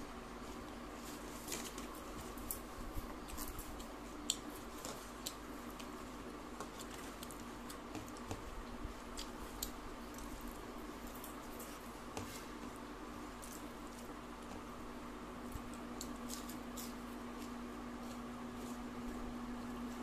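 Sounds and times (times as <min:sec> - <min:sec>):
fingers squishing rice: 0:00.3 - 0:20.0
chewing: 0:01.3 - 0:11.9.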